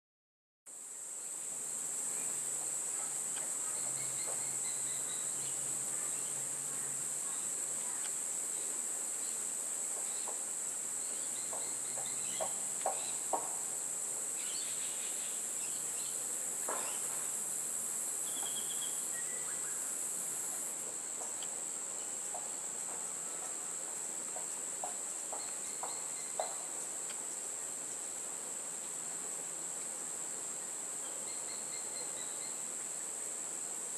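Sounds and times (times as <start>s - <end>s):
insects droning: 0.7s - 33.9s
faint bird chirps: 18.2s - 19.9s, 31.0s - 32.7s.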